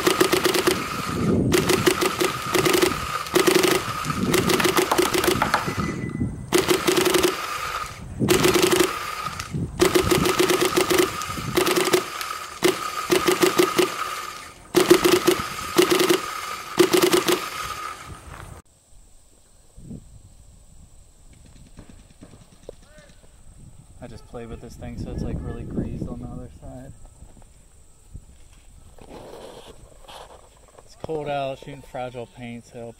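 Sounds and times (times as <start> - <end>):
paintball marker firing rapid shots: 0.0 - 5.8, 6.5 - 17.9
steady whine: 0.0 - 19.8.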